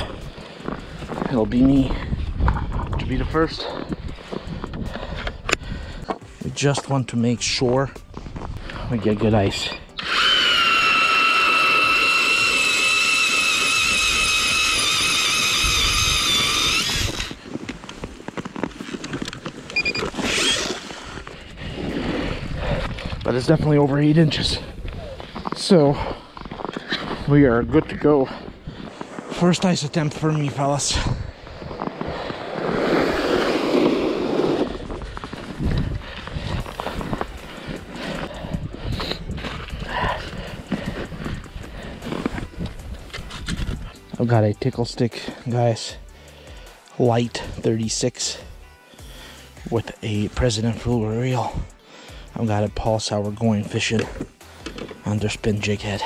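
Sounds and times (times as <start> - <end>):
crunching and scraping over snowy ice: 0.0 - 46.6
ice auger motor whining: 9.6 - 21.8.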